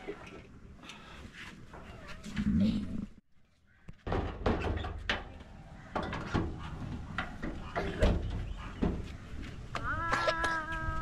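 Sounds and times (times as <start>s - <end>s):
irregular knocks and bangs: 3.9s - 9.2s.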